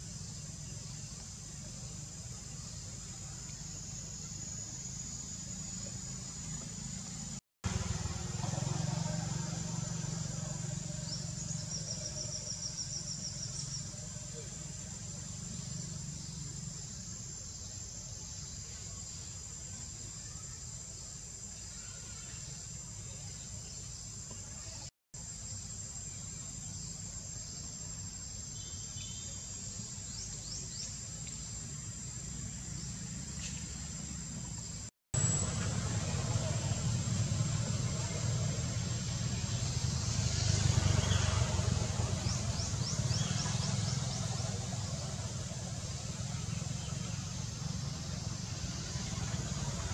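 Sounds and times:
low outdoor rumble: 0.0 - 17.2, 30.1 - 49.9
low steady rumble: 31.6 - 40.5.

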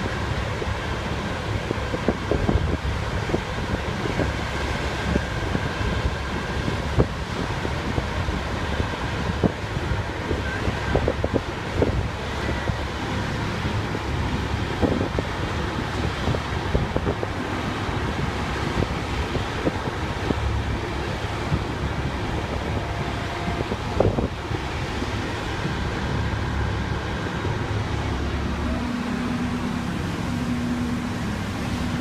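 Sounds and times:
steady low rumble: 0.0 - 32.0
wind buffeting microphone: 0.0 - 32.0.

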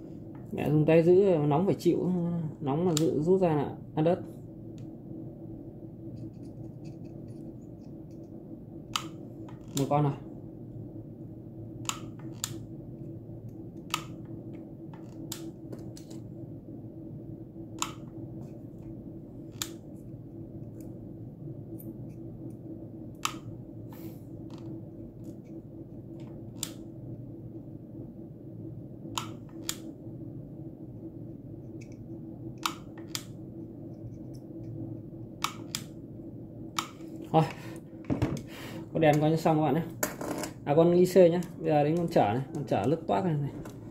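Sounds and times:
steady low hum: 0.0 - 43.9.

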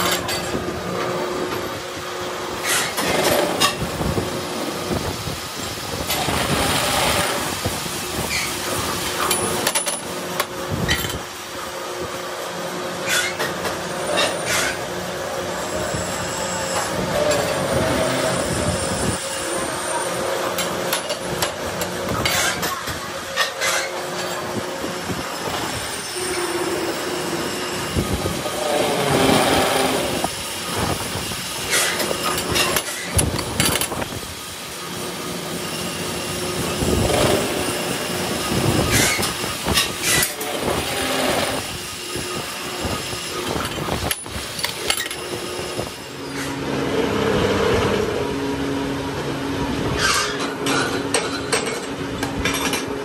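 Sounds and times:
cutting tool screeching on steel: 13.0 - 14.9, 15.5 - 20.2, 23.4 - 24.4, 25.4 - 30.2, 38.8 - 41.7, 50.0 - 51.0
lathe machine hum: 23.1 - 30.8, 34.4 - 43.4, 44.5 - 49.8.

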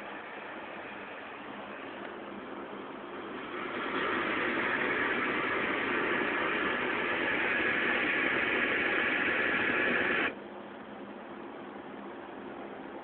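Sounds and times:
tv static hiss: 0.0 - 10.4.

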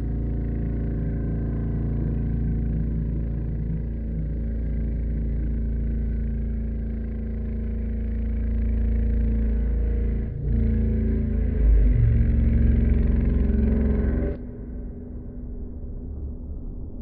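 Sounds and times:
low droning hum: 0.0 - 17.0
heavy rumble: 8.4 - 17.0.

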